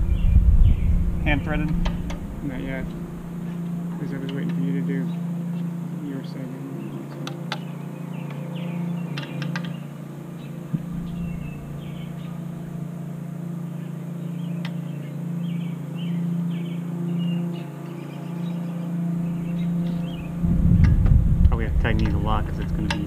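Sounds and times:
birds chirping: 0.0s - 23.0s
steady low hum: 0.0s - 23.0s
sharp clicks of metal brackets: 9.1s - 9.8s, 22.0s - 23.0s.

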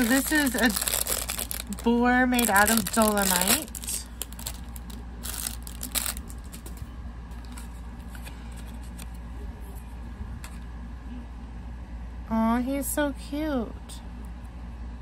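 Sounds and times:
packaging rustling: 0.0s - 9.2s
steady low hum: 0.0s - 15.0s.

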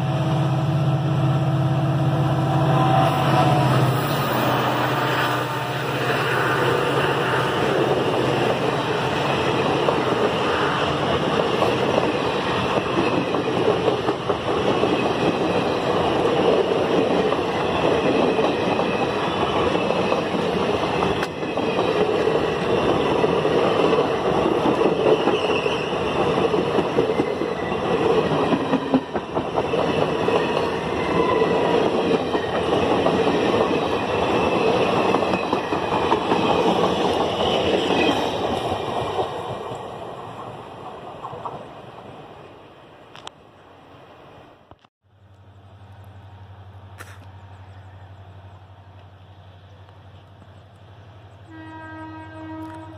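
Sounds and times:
train wheels rumbling on rails: 0.0s - 42.3s.

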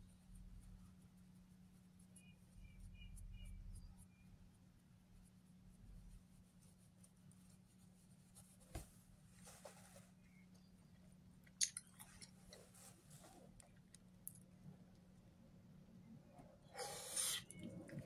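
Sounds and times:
faint steady hum: 0.0s - 18.0s
soft rubbing and handling: 5.0s - 11.2s, 12.0s - 13.9s.

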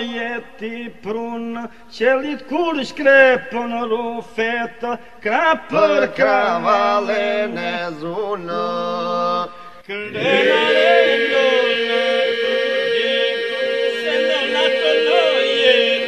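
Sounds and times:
chant-like folk singing: 5.3s - 16.0s.

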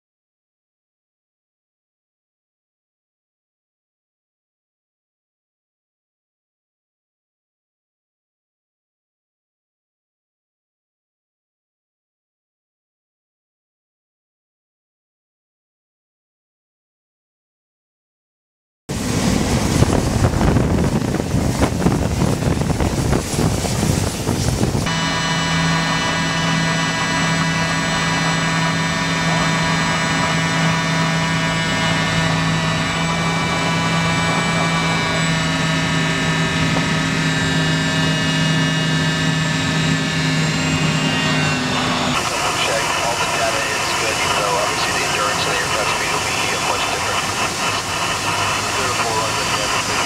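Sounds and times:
wind buffeting microphone: 18.9s - 24.9s
jet engine roar with whine: 18.9s - 50.0s
low hum: 18.9s - 50.0s.

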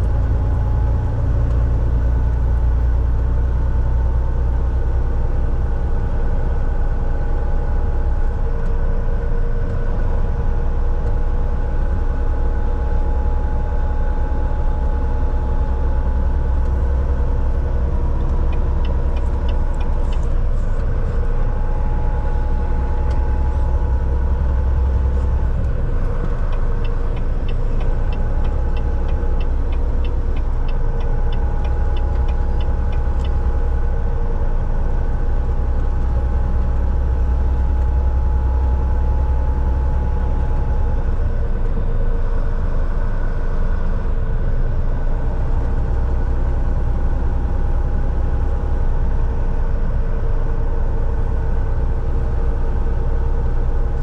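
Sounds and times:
drivetrain whine: 0.0s - 54.0s
road rumble: 0.0s - 54.0s
truck diesel drone: 0.0s - 54.0s
light ticks: 18.2s - 20.4s, 25.1s - 33.8s.

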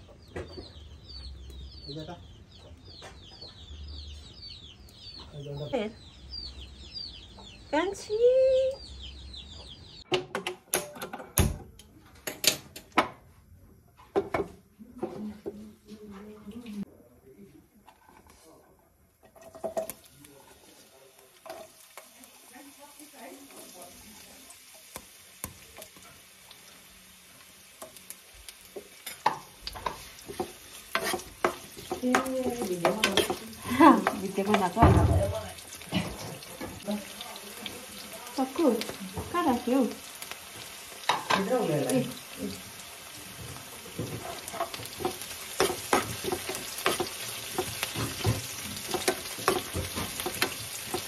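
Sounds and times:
pan and utensils clattering: 10.1s - 13.2s, 19.2s - 22.2s, 28.7s - 37.0s, 40.5s - 42.6s, 43.2s - 51.0s.

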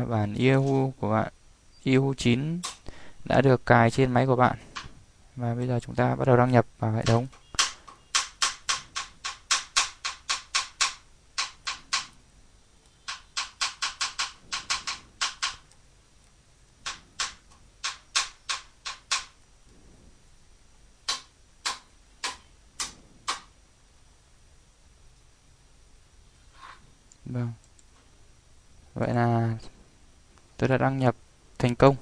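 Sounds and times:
keyboard typing: 7.0s - 12.2s, 12.8s - 19.4s.

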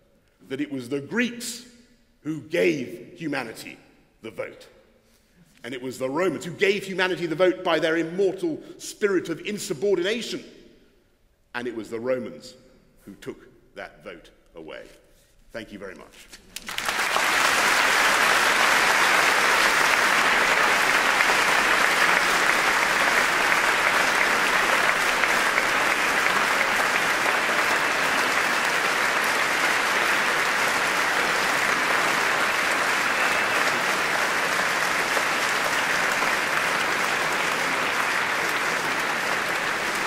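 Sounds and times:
large audience applauding: 16.5s - 40.0s.

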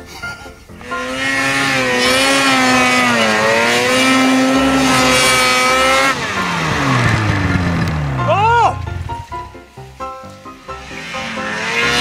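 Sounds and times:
snowmobile engine revving hard: 0.8s - 9.1s, 10.8s - 12.0s.

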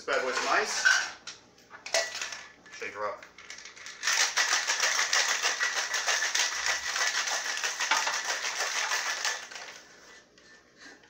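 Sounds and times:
ice rattling in metal shaker: 2.1s - 9.8s.

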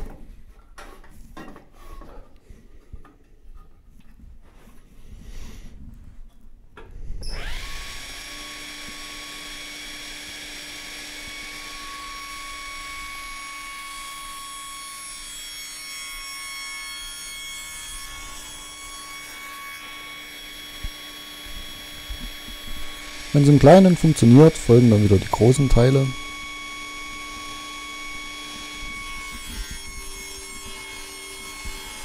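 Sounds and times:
table saw motor whining: 7.2s - 32.0s
saw blade cutting wood: 7.3s - 32.0s.

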